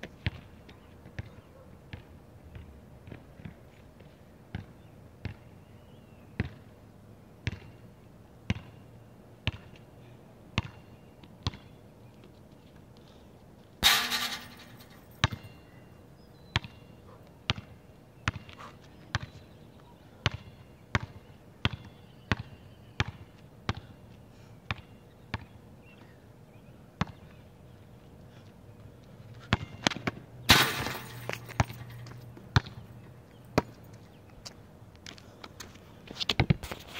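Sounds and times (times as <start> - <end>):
basketball bouncing on asphalt: 0.0 - 3.6, 4.5 - 5.5, 6.4 - 6.7, 7.4 - 7.8, 8.5 - 8.8, 9.4 - 9.8, 10.6 - 11.8, 13.8 - 15.6, 16.5 - 16.9, 17.5 - 19.5, 20.2 - 24.0, 24.7 - 26.1, 27.0 - 27.4, 29.4 - 33.8
metal hoop clanging: 13.8 - 15.6, 30.5 - 32.2.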